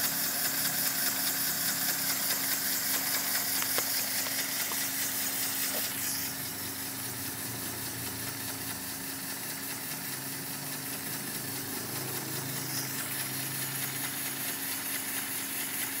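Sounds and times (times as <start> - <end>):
hiss of compressed air: 0.1 - 6.9
air engine running: 10.6 - 14.6.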